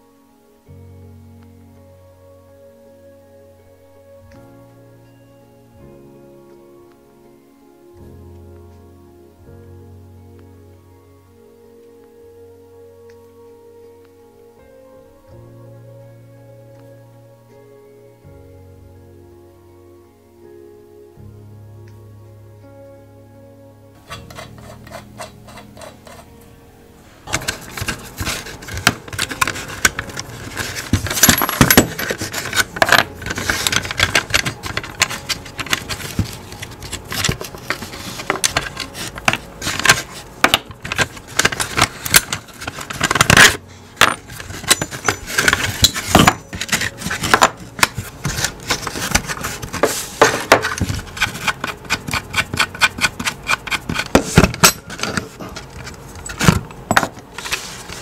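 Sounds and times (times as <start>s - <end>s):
small metal parts clinking: 27.3s - 58.0s.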